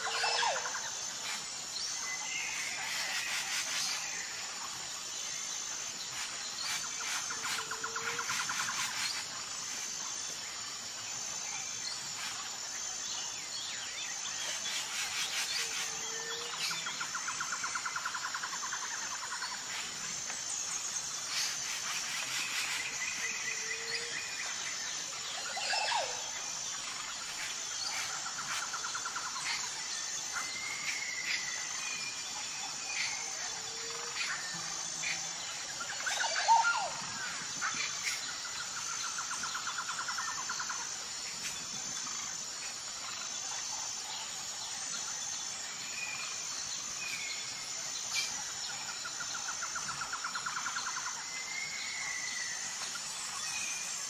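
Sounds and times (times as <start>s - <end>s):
high-pitched insect chirring: 0.0s - 54.0s
birds trilling and whistling: 20.7s - 40.7s.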